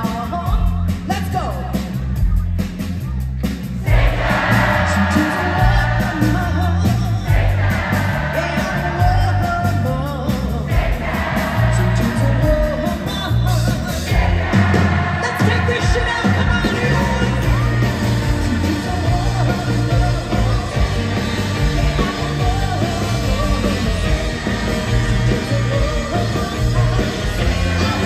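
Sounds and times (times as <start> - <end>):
rock band playing live: 0.0 - 28.0
woman singing lead: 8.4 - 28.0.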